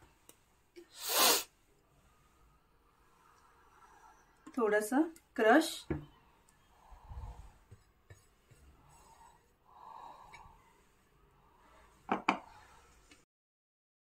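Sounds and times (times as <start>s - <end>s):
soft scraping: 5.9s - 13.3s.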